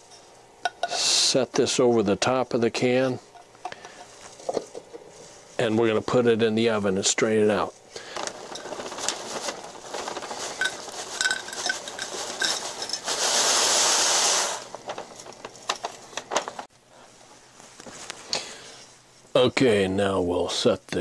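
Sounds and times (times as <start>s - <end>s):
crumbs rattling into tin can: 8.0s - 16.6s
paper rustling: 8.0s - 16.7s.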